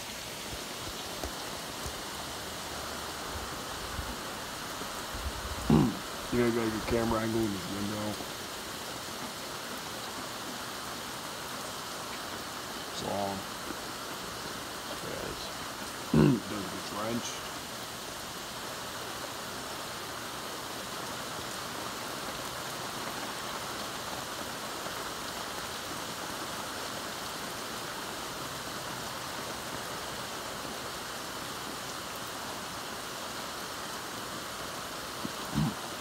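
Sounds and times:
heavy rain downpour: 0.0s - 36.0s.

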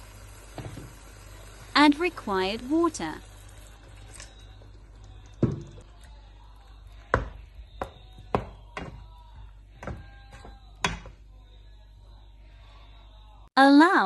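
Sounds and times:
spatula knocking against pan: 7.1s - 9.1s, 9.8s - 11.2s.

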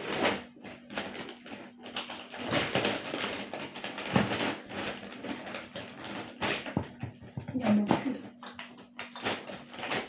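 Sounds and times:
packaging rustling and crinkling: 0.0s - 7.6s, 8.3s - 10.0s.

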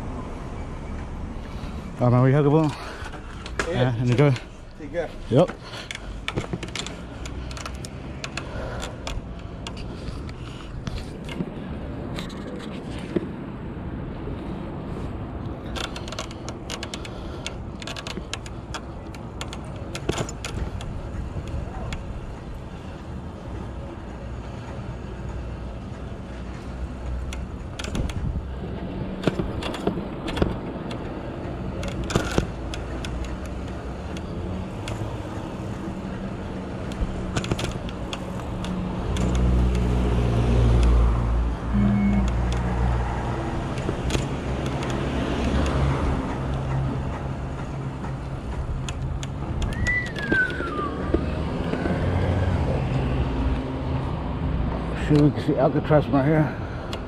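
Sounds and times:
motor vehicle engine rumble: 0.0s - 57.0s
road and wind rumble: 0.0s - 57.0s
sharp clicks and rattles: 2.6s - 13.3s, 15.4s - 22.6s, 24.6s - 40.0s, 42.2s - 52.0s.

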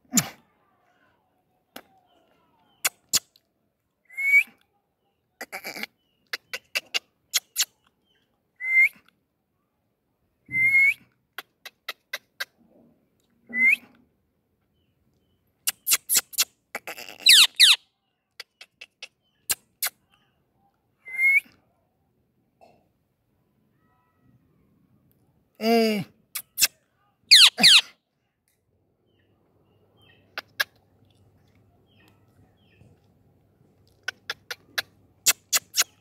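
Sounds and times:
parakeet whistling: 27.3s - 27.8s.

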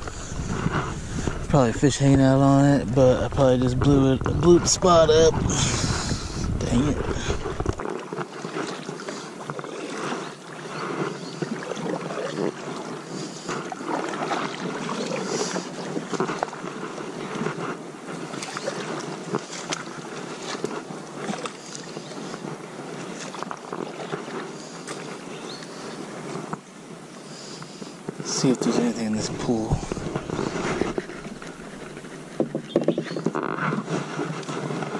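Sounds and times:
paddle splashing through water: 0.0s - 2.3s, 3.2s - 34.9s
small knocks: 29.7s - 33.5s.

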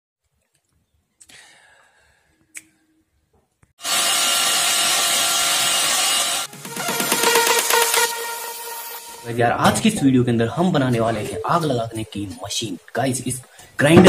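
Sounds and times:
angle grinder blower whining: 3.8s - 9.2s.

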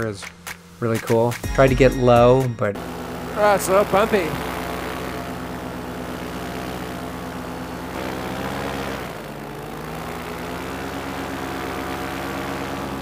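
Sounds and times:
paramotor engine and propeller: 2.8s - 13.0s.

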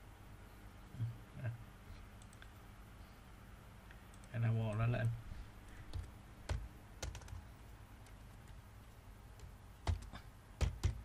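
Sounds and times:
computer clicks: 2.2s - 2.6s, 3.9s - 8.6s.

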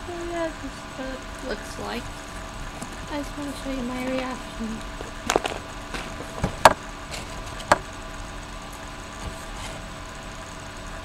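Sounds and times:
steady background hum: 0.0s - 11.0s
sharp clicks and knocks: 4.9s - 7.9s.

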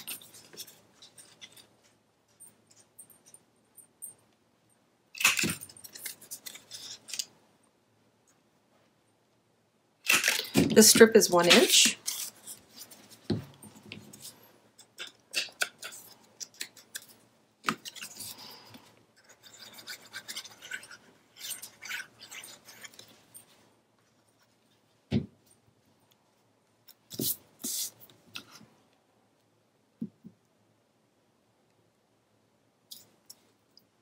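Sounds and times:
paper rustling and scraping: 5.4s - 7.3s, 10.1s - 14.4s, 15.4s - 24.8s.

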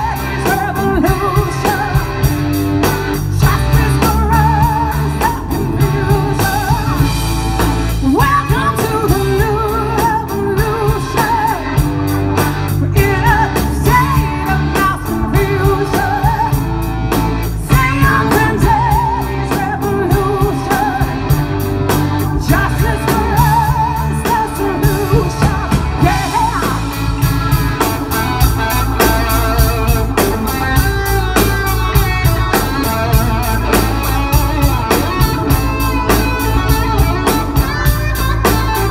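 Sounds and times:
woman singing: 0.0s - 2.3s, 3.2s - 7.2s, 8.0s - 12.1s, 12.7s - 16.7s, 17.6s - 27.2s
bass: 0.0s - 38.9s
drum kit: 0.0s - 38.9s
electric guitars: 0.0s - 38.9s
organ: 0.0s - 38.9s.

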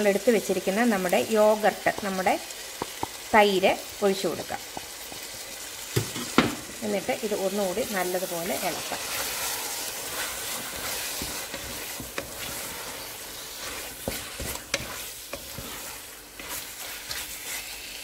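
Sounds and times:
food sizzling in a pot: 0.0s - 18.0s
spatula scraping pot: 8.1s - 18.0s.

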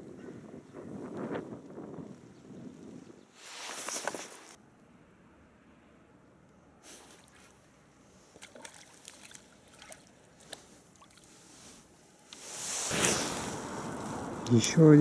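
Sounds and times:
fish splashing at water surface: 8.3s - 11.3s.

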